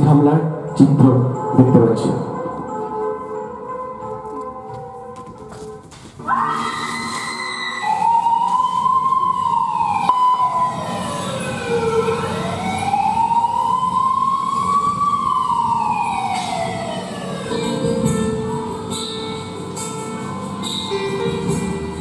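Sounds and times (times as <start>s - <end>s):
siren wailing: 6.2s - 18.6s.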